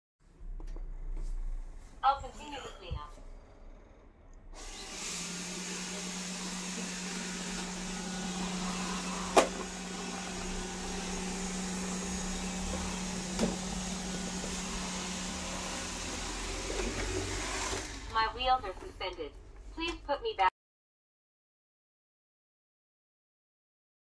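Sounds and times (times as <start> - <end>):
robot vacuum humming: 2.2 - 19.0.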